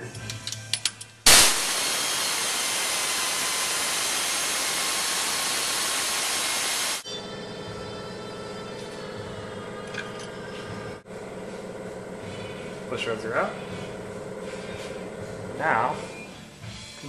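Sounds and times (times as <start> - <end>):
air ratchet rush of air: 1.3 - 7.0.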